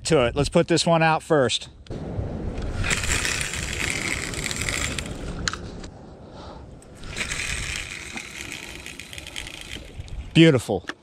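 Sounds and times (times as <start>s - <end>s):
wind rumble on microphone: 1.8s - 8.6s, 9.2s - 10.4s.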